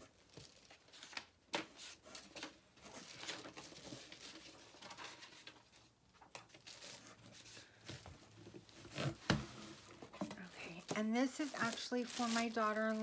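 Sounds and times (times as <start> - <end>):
packaging rustling and tapping: 7.8 - 13.0.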